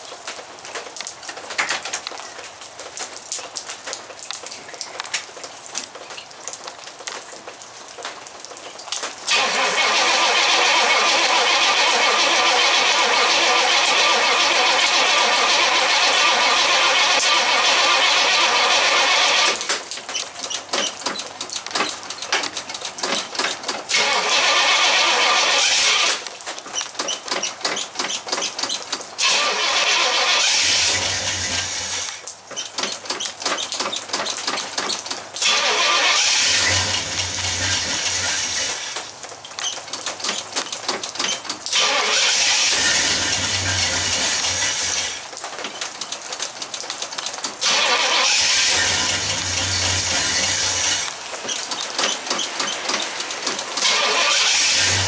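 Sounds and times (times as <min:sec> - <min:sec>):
starter cranking engine: 0:09.3 - 0:19.8, 0:20.5 - 0:26.2, 0:27.2 - 0:39.1, 0:39.8 - 0:45.2, 0:47.4 - 0:55.0
car engine running: 0:35.4 - 0:39.0, 0:41.8 - 0:45.2, 0:47.6 - 0:51.2, 0:53.8 - 0:55.0.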